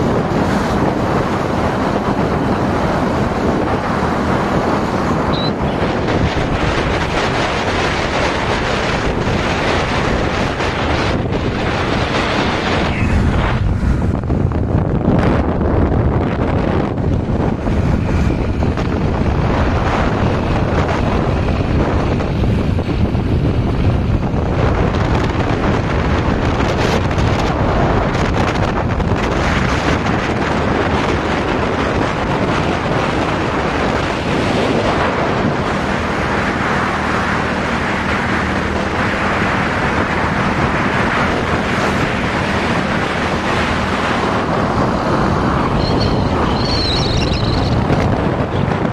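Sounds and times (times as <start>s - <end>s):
motorcycle hum: 0.0s - 48.9s
wind buffeting microphone: 0.0s - 48.9s.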